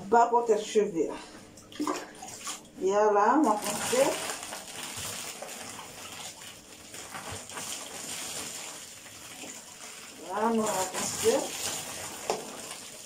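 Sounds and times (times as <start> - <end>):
brush scrubbing wet hair: 3.5 - 13.0.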